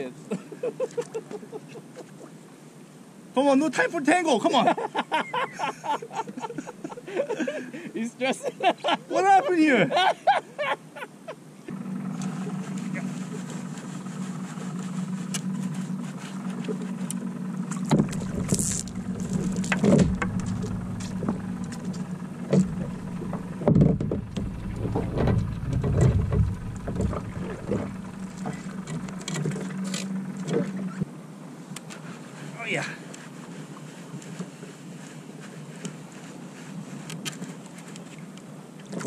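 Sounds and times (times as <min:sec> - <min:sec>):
steady low hum: 0:11.6 - 0:31.0
water splashing: 0:12.1 - 0:29.9
knocks against kayak hull: 0:17.9 - 0:28.6.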